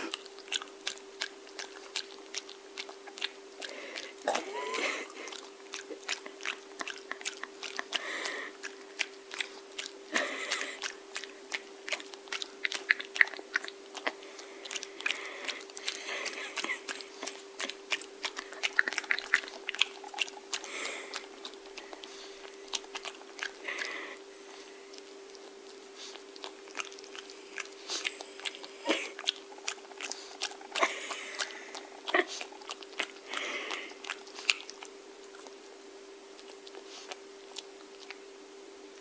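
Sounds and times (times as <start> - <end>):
dog crunching on food: 0.0 - 35.7.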